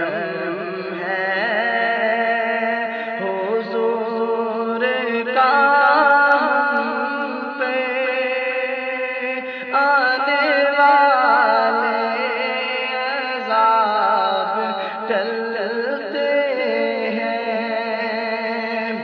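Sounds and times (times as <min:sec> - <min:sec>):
man singing unaccompanied: 0:00.0 - 0:19.0.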